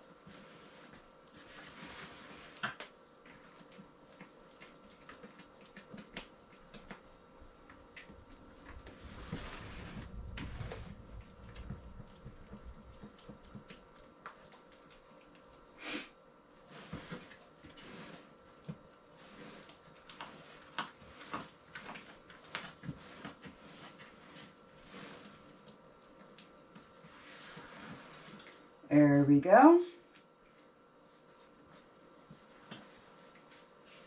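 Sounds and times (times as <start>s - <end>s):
spoon stirring thick mash: 0.0s - 15.7s, 16.6s - 28.7s.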